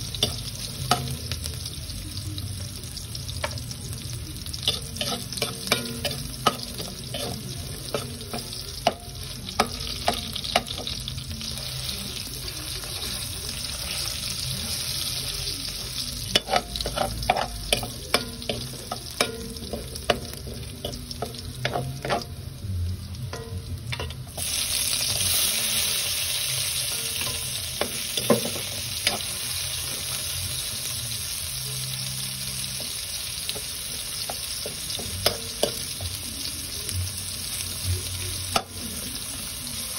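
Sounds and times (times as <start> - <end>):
garlic sizzling in oil: 0.0 - 39.9
metal spatula scraping a wok: 4.7 - 10.8, 16.2 - 22.3.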